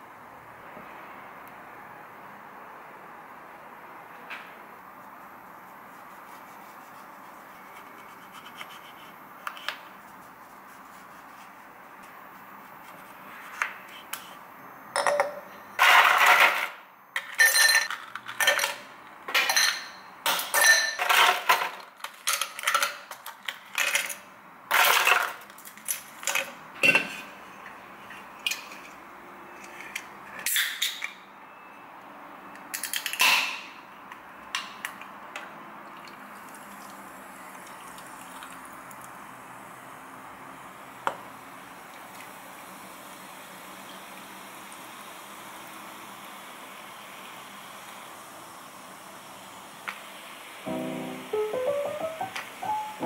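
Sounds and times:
ice cubes clinking in glasses: 17.2s - 18.8s
drink fizzing over ice: 35.9s - 39.2s.

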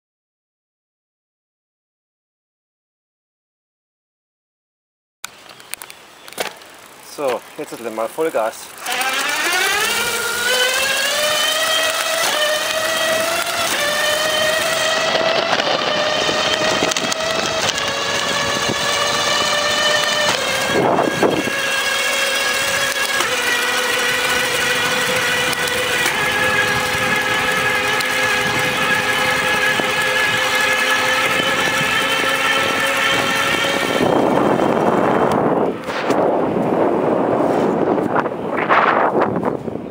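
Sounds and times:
electric bike motor whining: 5.3s - 39.9s
rush of wind: 11.8s - 39.9s.

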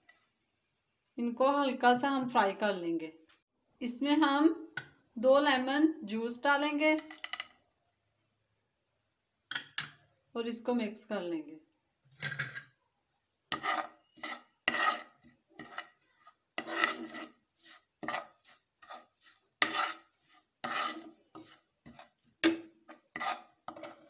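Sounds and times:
spoon scraping frying pan: 13.5s - 24.0s.

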